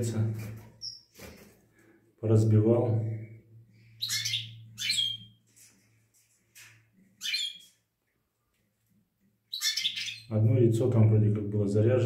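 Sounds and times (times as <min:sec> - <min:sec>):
finches chirping: 0:00.8 - 0:01.1, 0:03.8 - 0:05.4, 0:07.2 - 0:07.7, 0:09.5 - 0:10.3.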